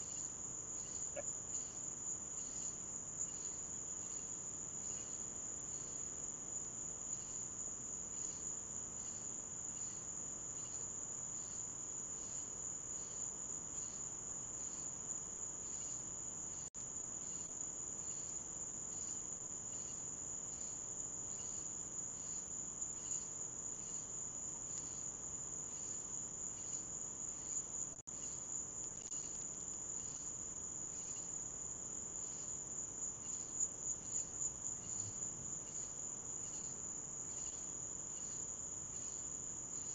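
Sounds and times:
pulsing insect call: 0.0s - 6.0s
crickets trilling: 0.0s - 39.9s.

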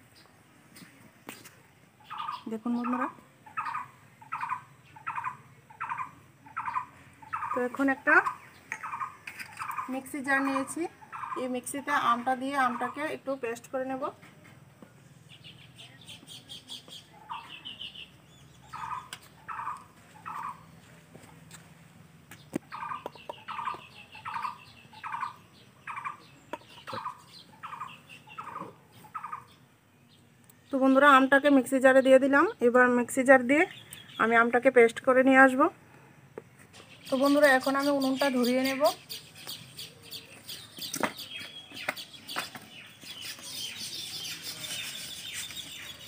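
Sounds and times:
bird calling with rasping notes: 2.0s - 13.3s, 15.3s - 20.8s, 22.4s - 31.3s, 36.7s - 46.0s.

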